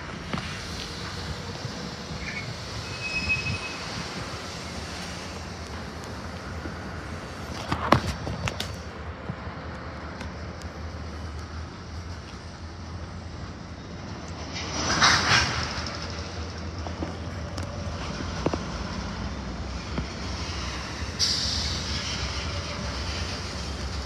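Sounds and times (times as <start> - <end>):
steel wheels rumbling on rail: 0.0 - 24.0
high wheel squeal: 1.5 - 5.5.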